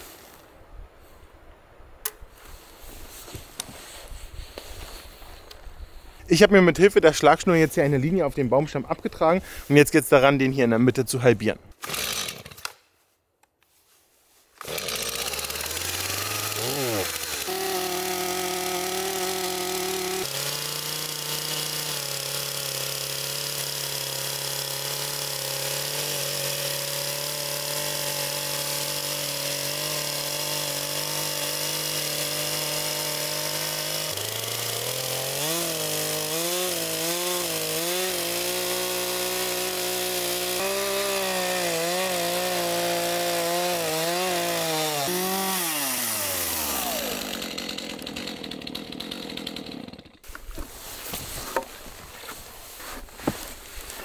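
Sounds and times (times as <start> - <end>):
chainsaw cutting log: 11.8 - 12.8, 14.6 - 52.3.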